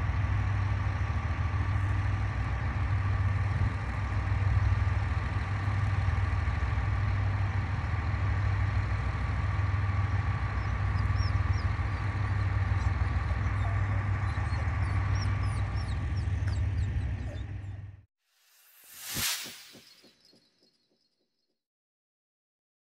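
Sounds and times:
thin steady whine: 0:00.0 - 0:17.8, 0:18.4 - 0:20.4
train low hum: 0:00.0 - 0:18.1
small birds chirping: 0:10.0 - 0:18.0, 0:18.8 - 0:21.1.

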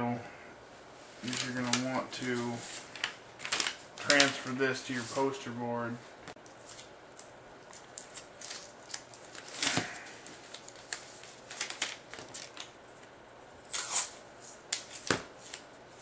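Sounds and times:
paper crackles and clicks: 0:01.2 - 0:04.6, 0:06.7 - 0:12.8.

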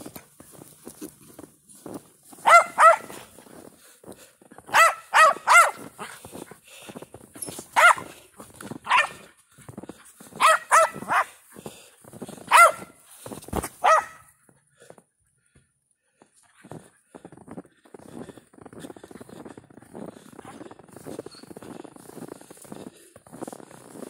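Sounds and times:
dog barking: 0:02.4 - 0:03.3, 0:04.7 - 0:06.1, 0:07.8 - 0:08.2, 0:08.8 - 0:09.3, 0:10.4 - 0:11.4, 0:12.5 - 0:13.0, 0:13.8 - 0:14.3.

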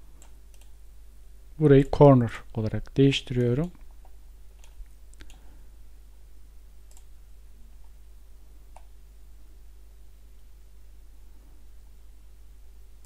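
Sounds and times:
steady low hum: 0:00.0 - 0:13.0
computer mouse clicks: 0:00.2 - 0:00.8, 0:02.8 - 0:05.4, 0:06.9 - 0:07.1.

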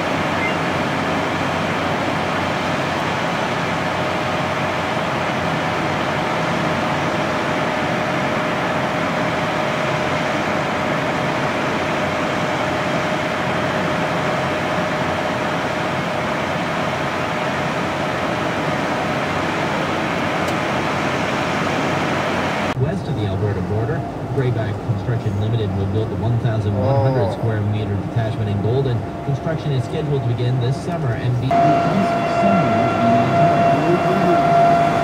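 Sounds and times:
fire truck engines running: 0:00.0 - 0:35.0
faint constant hum: 0:22.8 - 0:35.0.

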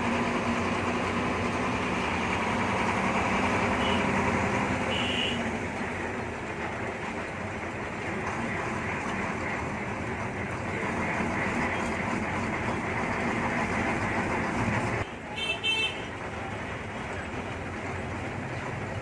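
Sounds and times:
bus engine running: 0:00.0 - 0:19.0
road noise: 0:00.0 - 0:19.0.

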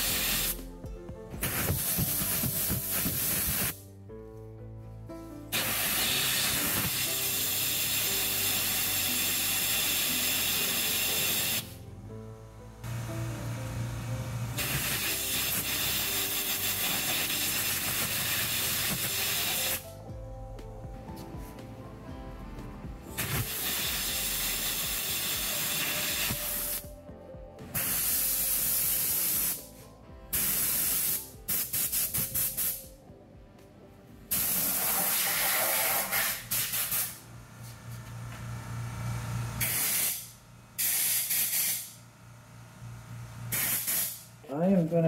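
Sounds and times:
compressed air hissing from blow gun: 0:00.0 - 0:00.6, 0:01.4 - 0:03.8, 0:05.6 - 0:11.8, 0:14.6 - 0:19.8, 0:23.2 - 0:26.8, 0:27.8 - 0:32.8, 0:34.3 - 0:37.2, 0:39.6 - 0:42.0, 0:43.5 - 0:44.3.

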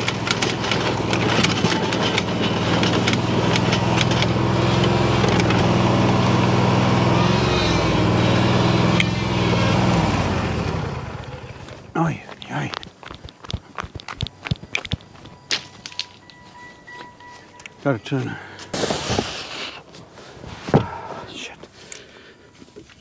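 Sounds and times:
small vehicle engine running: 0:00.0 - 0:19.5
scattered clicks: 0:12.3 - 0:16.4.

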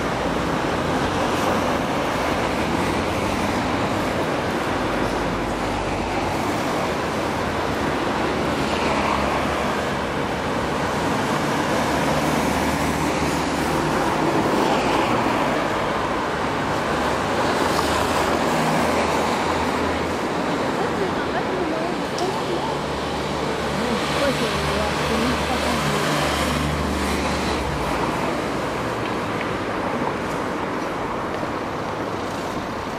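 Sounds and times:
road traffic passing: 0:00.0 - 0:32.9.

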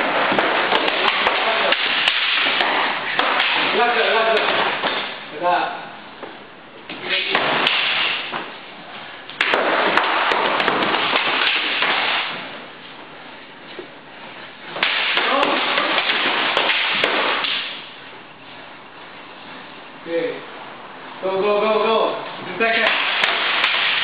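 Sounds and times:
sticks clacking: 0:00.0 - 0:05.1, 0:22.8 - 0:24.0.

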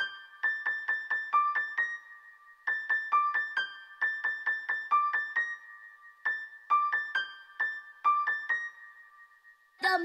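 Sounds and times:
bell-like keyboard melody: 0:00.0 - 0:09.8.

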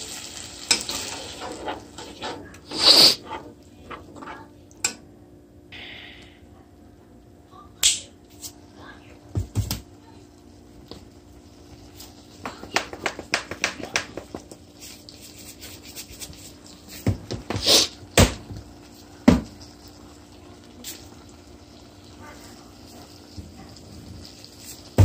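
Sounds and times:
seasoning shaker rattling: 0:12.0 - 0:17.0.

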